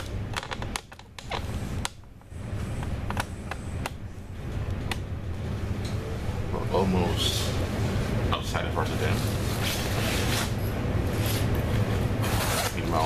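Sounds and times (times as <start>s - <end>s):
sharp clicks and creaks: 0.3s - 5.0s
train rumble inside carriage: 1.4s - 13.0s.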